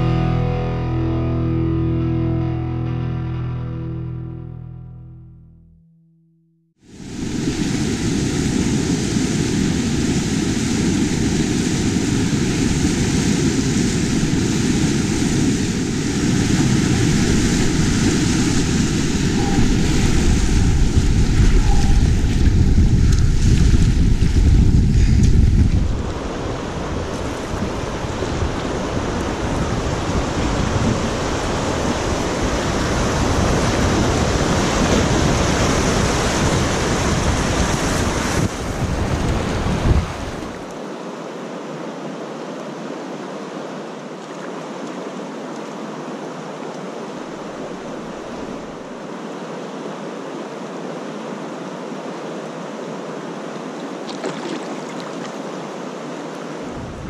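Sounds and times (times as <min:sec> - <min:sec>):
rushing white water: 0:06.9 - 0:24.6, 0:25.8 - 0:57.0
wind on microphone: 0:06.9 - 0:40.7, 0:56.6 - 0:57.0.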